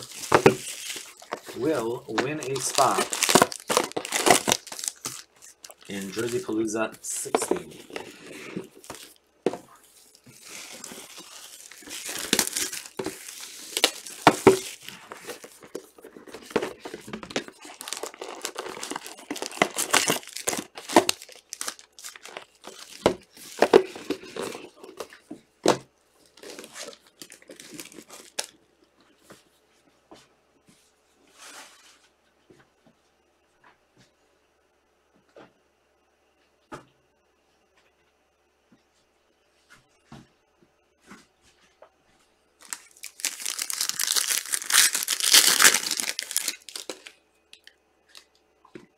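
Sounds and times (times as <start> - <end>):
plastic wrapping tearing and crumpling: 0.0 - 9.2, 9.8 - 25.1, 26.3 - 28.6, 42.6 - 48.3.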